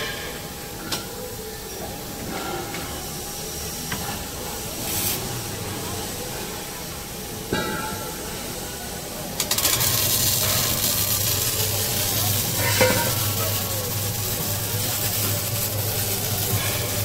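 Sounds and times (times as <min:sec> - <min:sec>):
welding arc crackling: 0:04.2 - 0:07.2, 0:08.0 - 0:17.0.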